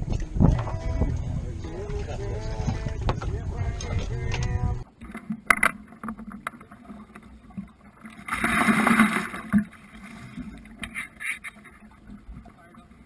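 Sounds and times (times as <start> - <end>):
bucket of water splashing out: 8.1 - 10.4.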